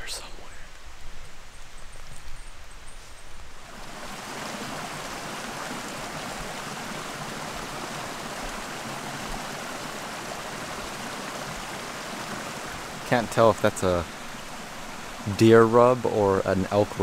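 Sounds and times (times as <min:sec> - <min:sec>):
water rushing: 0:03.5 - 0:17.0.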